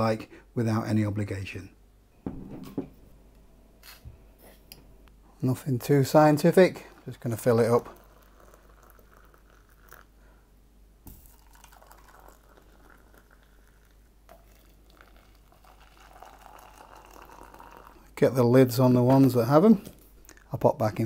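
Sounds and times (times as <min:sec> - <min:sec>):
short knock: 0:02.2 - 0:03.0
water trickling into mugs: 0:05.9 - 0:10.2, 0:11.1 - 0:18.3.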